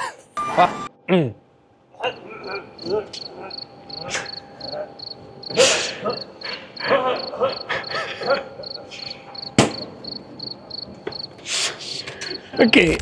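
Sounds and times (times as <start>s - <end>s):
cricket chirping: 2.0s - 13.0s
man laughing: 5.5s - 9.1s.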